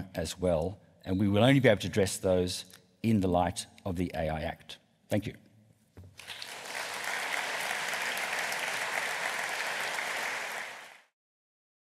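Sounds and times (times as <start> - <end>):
audience applauding: 6.2 - 11.1.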